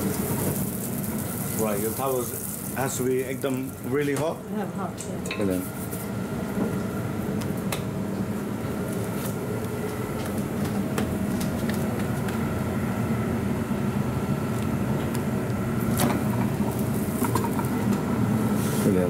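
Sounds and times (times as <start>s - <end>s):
gas range and ventilation rumble: 0.0s - 19.0s.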